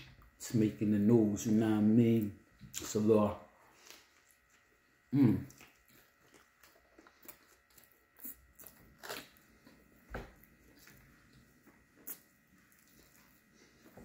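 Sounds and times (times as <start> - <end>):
faint chewing: 3.7 - 14.0.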